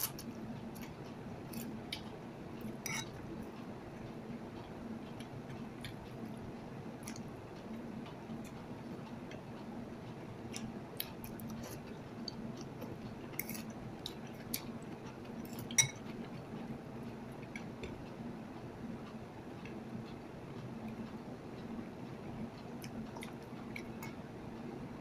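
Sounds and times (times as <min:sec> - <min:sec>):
steady low hum: 0:00.0 - 0:25.0
cutlery clinking against bowl: 0:02.8 - 0:03.2, 0:15.5 - 0:16.1.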